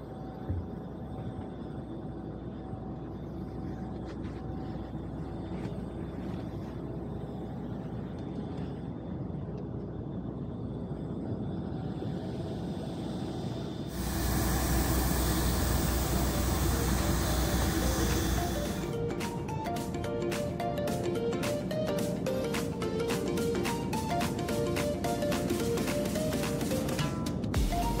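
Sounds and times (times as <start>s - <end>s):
aircraft cabin rumble: 0.0s - 28.0s
background music: 14.0s - 28.0s.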